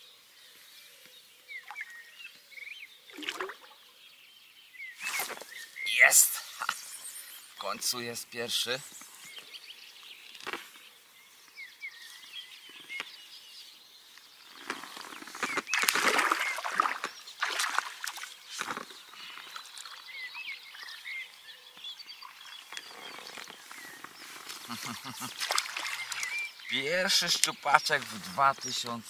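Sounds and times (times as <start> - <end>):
birds chirping: 0.0 - 29.0
fish thrashing water splashing: 15.7 - 18.3, 25.2 - 26.4.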